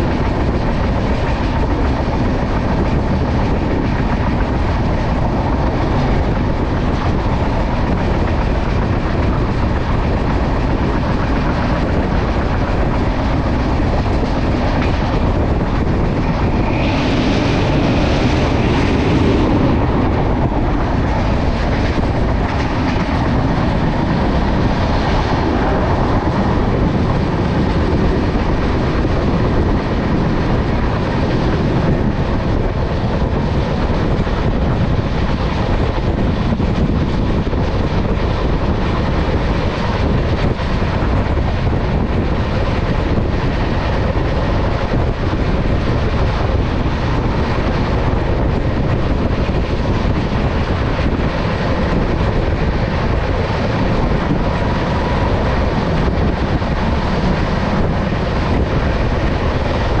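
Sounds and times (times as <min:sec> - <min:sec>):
train running on track: 0:00.0 - 1:00.0
wind rushing across microphone: 0:00.0 - 1:00.0.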